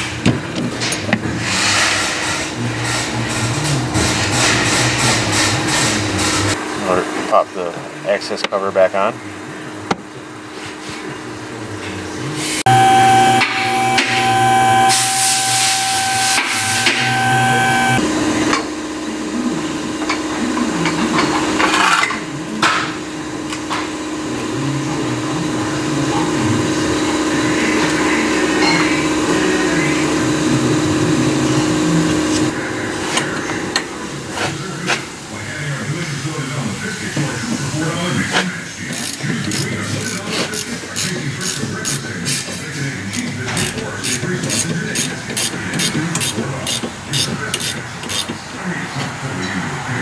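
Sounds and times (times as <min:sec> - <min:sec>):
steady hum: 0:12.2 - 0:18.4
air hissing: 0:12.4 - 0:18.0
power tool whining: 0:12.6 - 0:18.1.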